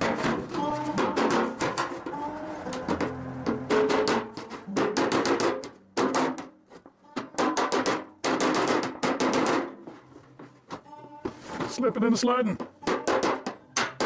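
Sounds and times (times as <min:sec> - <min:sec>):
hammer striking metal panel: 0:02.8 - 0:06.6, 0:07.4 - 0:09.8, 0:12.8 - 0:14.0.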